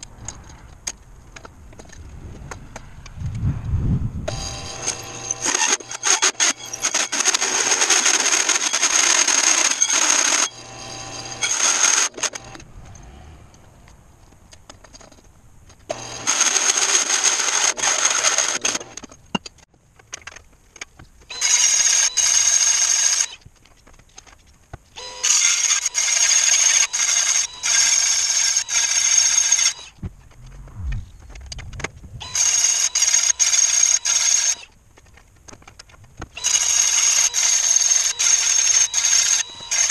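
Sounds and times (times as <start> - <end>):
drill press cutting wood: 4.3 - 12.6, 15.9 - 19.0, 25.0 - 29.9, 32.2 - 34.7, 36.4 - 39.9
handheld power tool on wood: 4.3 - 13.0, 15.9 - 19.2, 21.3 - 24.4, 25.0 - 30.0, 32.2 - 39.9.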